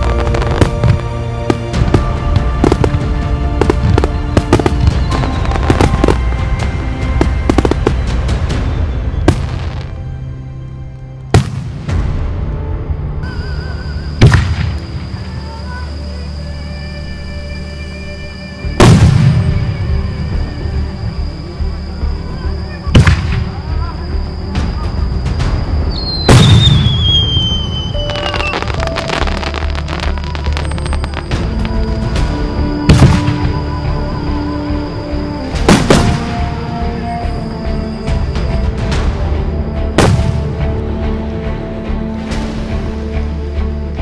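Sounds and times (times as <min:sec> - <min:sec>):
fireworks bangs and crackles: 0:00.0 - 0:10.1, 0:11.3 - 0:12.4, 0:14.1 - 0:15.6, 0:18.7 - 0:21.2, 0:22.7 - 0:39.2, 0:39.8 - 0:40.7
music with held notes: 0:00.0 - 0:44.0.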